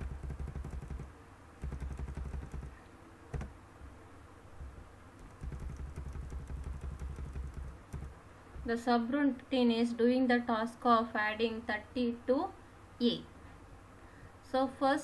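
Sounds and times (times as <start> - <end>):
keyboard keys clicking: 0.0 - 3.5, 5.2 - 8.2.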